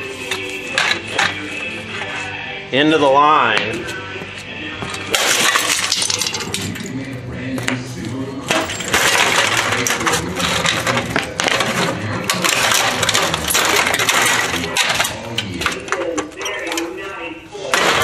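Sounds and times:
plastic and metal parts cracking: 4.9 - 6.9, 8.5 - 17.1, 17.7 - 18.0.

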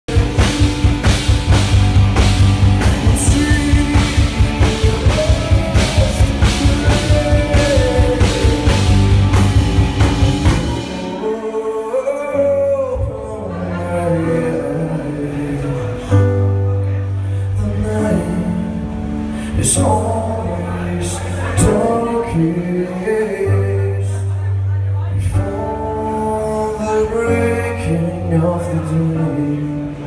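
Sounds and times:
drum kit beat: 0.0 - 13.5
bass guitar: 0.0 - 30.0
keyboard: 0.0 - 30.0
man singing lead vocals: 0.0 - 30.0
electric guitars: 0.1 - 12.0.

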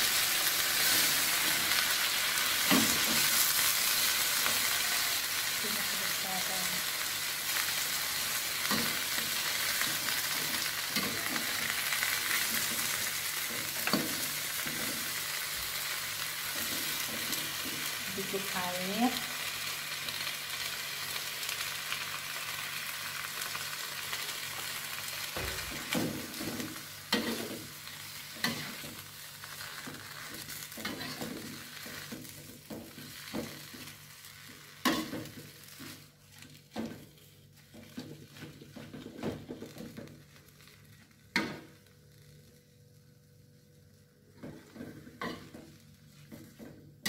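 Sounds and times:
greens sizzling in a wok: 0.0 - 47.0
metal spatula scraping wok: 25.7 - 33.9.

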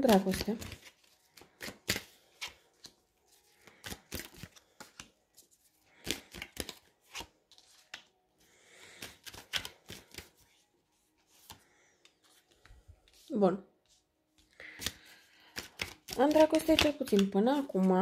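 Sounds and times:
cards snapping and tapping: 0.0 - 3.0, 9.0 - 10.3, 14.6 - 17.9
cards sliding rustle: 0.1 - 8.1, 8.8 - 10.6, 14.6 - 17.9.

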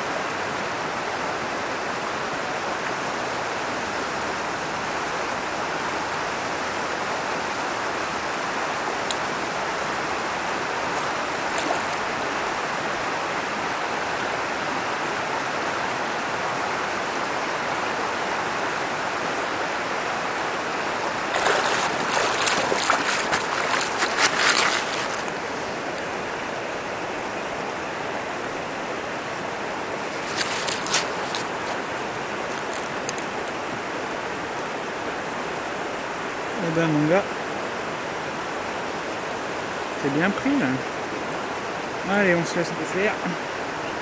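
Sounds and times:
river running over pebbles: 0.0 - 44.0
fish splashing in water: 10.9 - 12.1, 21.2 - 25.4, 30.0 - 31.8
boots crunching on gravel: 21.4 - 25.3.

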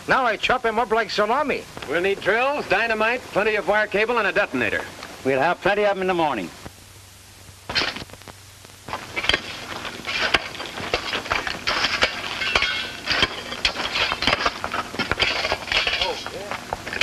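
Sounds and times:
hand tools clattering on rock: 9.0 - 17.0.

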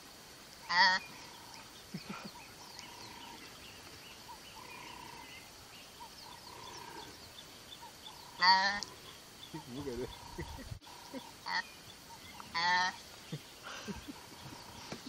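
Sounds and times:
bird calls and chirping: 0.7 - 15.0
antelope bleating: 8.2 - 11.7, 12.5 - 13.0.

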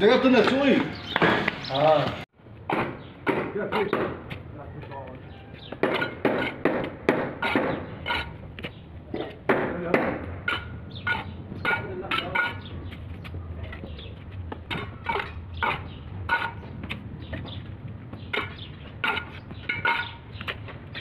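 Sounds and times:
trowel clinking on bricks: 5.8 - 8.4, 10.4 - 12.7, 14.7 - 16.6, 18.3 - 21.0.

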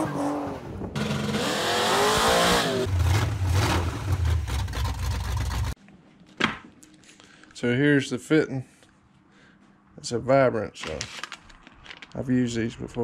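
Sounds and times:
engine revving with deep rumble: 0.0 - 5.0.

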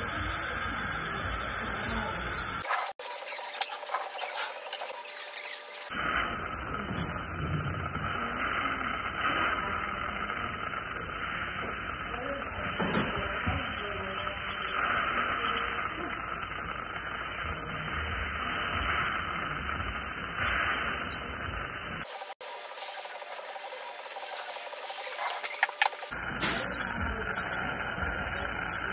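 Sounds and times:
dental suction: 0.0 - 22.1, 25.0 - 28.9
dental air-water syringe hissing: 4.1 - 22.1, 24.8 - 28.9.

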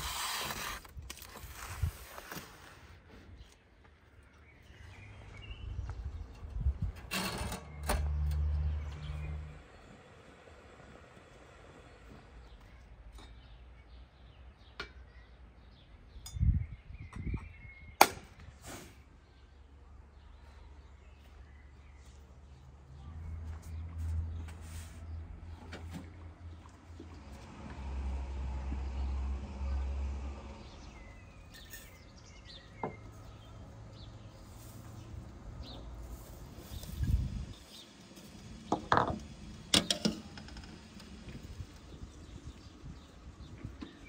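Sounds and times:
birds chirping: 3.1 - 7.0, 7.6 - 44.0.

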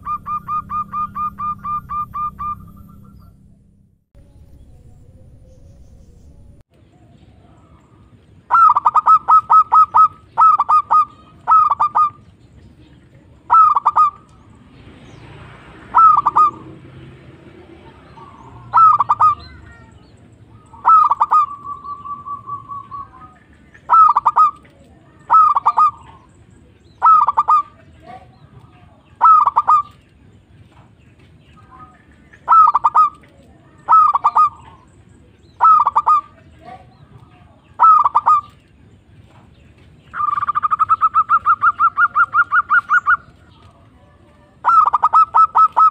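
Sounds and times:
dove cooing: 0.0 - 3.3, 7.0 - 12.3, 12.9 - 14.6, 15.9 - 16.8, 17.6 - 30.0, 31.6 - 38.6, 40.2 - 45.9.

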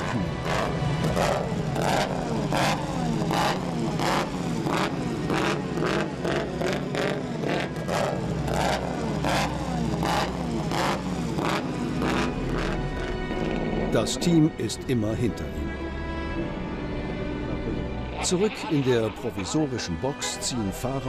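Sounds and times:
race car engine running: 0.0 - 14.1
background music with steady beat: 0.0 - 21.0.

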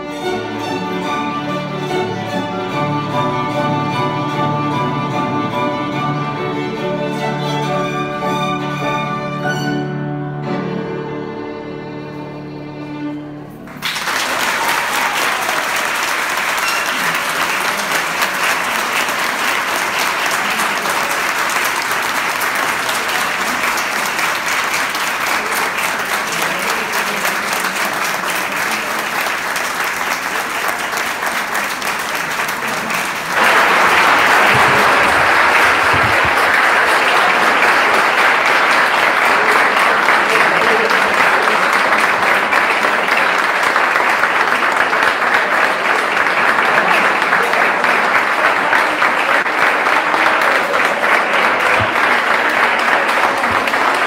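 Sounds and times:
audience applauding: 13.7 - 54.0.

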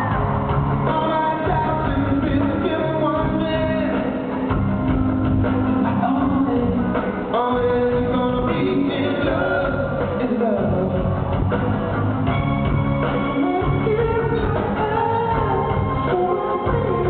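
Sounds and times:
drums: 0.0 - 17.0
electric guitar: 0.0 - 17.0
live rock band playing: 0.0 - 17.0
person singing: 0.8 - 4.5, 5.8 - 11.1, 13.2 - 17.0.

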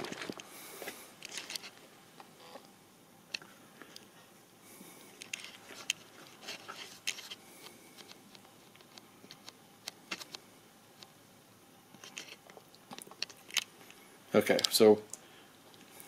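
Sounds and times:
tablet case clicks and rustling: 8.0 - 10.4.

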